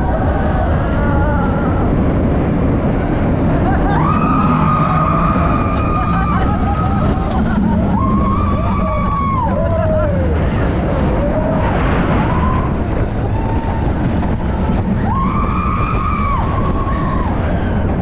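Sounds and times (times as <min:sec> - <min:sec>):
roller coaster rumbling on track: 0:00.0 - 0:18.0
wind on microphone: 0:00.0 - 0:18.0
riders yelling whoops: 0:03.6 - 0:18.0.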